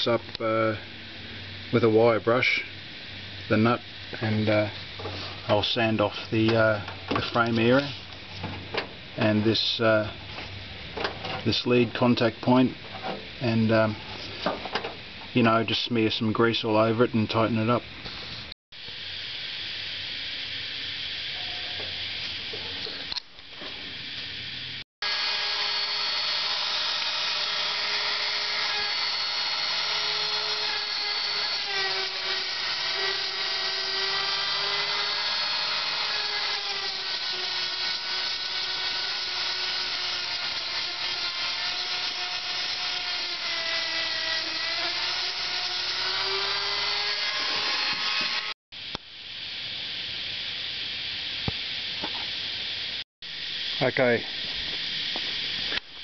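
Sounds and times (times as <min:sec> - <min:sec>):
power tool grinding metal: 0:25.0 - 0:48.6.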